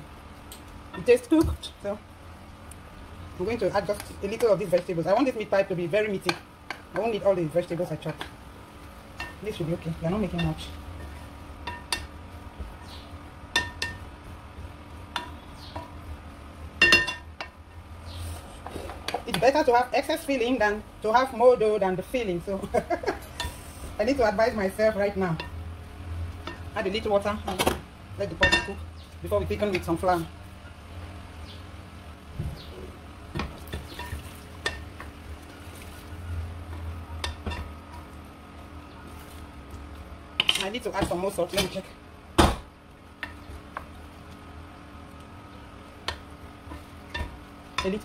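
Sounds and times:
food cooking on low heat: 0.0s - 48.0s
wooden spoon stirring in pan: 3.5s - 12.9s, 32.7s - 41.7s, 45.8s - 48.0s
wooden spatula stirring in pan: 8.0s - 12.9s.

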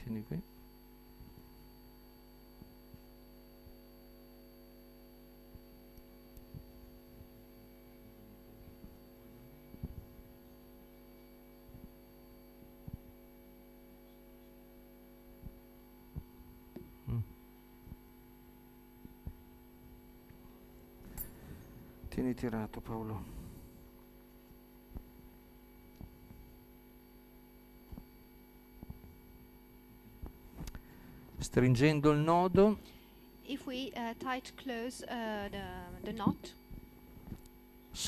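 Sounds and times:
electrical mains hum: 0.0s - 38.0s.

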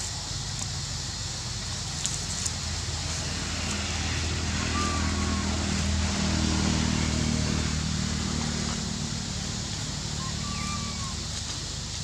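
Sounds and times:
engine idling: 0.0s - 12.0s
faint high-pitched call: 4.6s - 5.6s, 10.2s - 11.2s.

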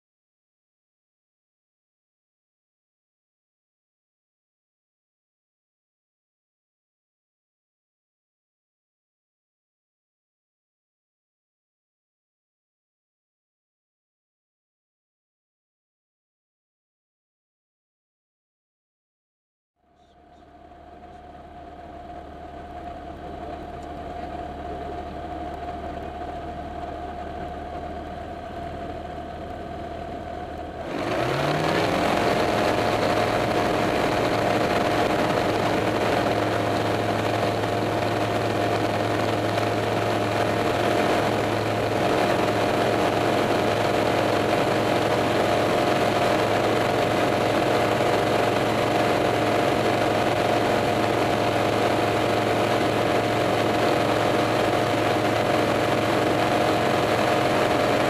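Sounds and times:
small airplane engine: 19.8s - 58.0s.

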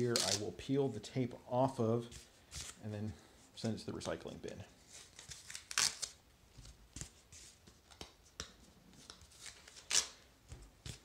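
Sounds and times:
masking tape ripping: 0.1s - 0.5s, 5.2s - 6.2s, 9.4s - 10.2s.

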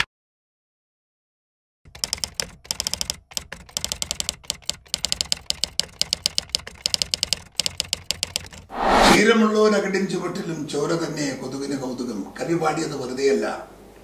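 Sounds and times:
typewriter key clicks: 1.9s - 8.7s.

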